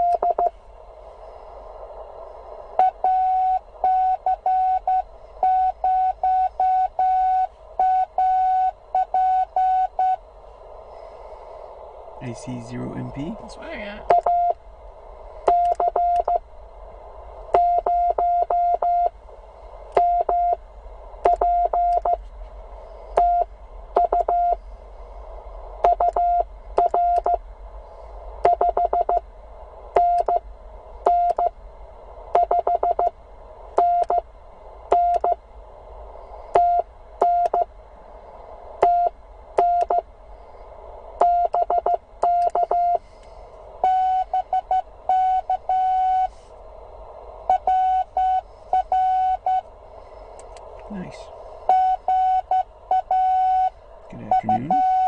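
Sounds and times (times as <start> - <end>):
morse code tone: 0.0 - 0.5, 2.8 - 10.2, 15.5 - 16.4, 17.6 - 19.1, 20.0 - 20.6, 21.3 - 22.2, 23.2 - 24.6, 25.8 - 27.4, 28.5 - 29.2, 32.4 - 33.1, 41.2 - 43.0, 43.8 - 46.3, 47.5 - 49.6, 51.7 - 55.0
receiver hiss: 0.0 - 55.0.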